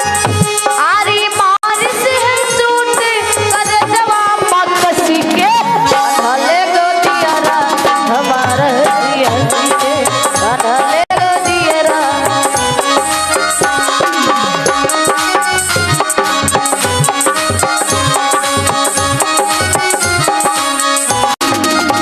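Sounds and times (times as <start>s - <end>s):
tabla: 0.0s - 22.0s
woman singing: 0.8s - 12.7s.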